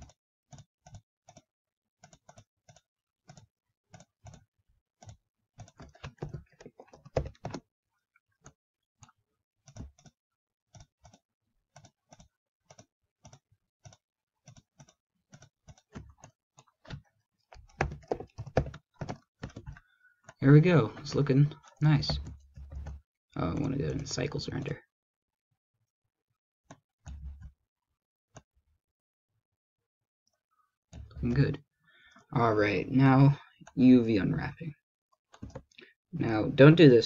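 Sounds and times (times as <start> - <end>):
keyboard typing: 0.0 - 4.4, 5.0 - 7.6, 8.4 - 24.6, 35.3 - 35.8.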